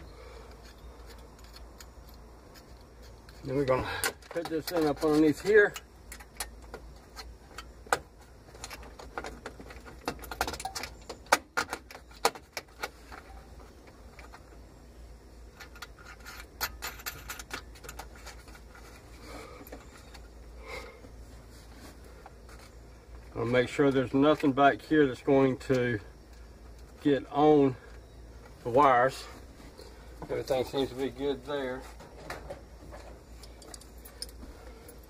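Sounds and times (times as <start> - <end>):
steady low hum: 0.0 - 35.0
clicks and rattles of wiring hardware: 0.5 - 14.6, 15.5 - 20.4, 30.4 - 35.0.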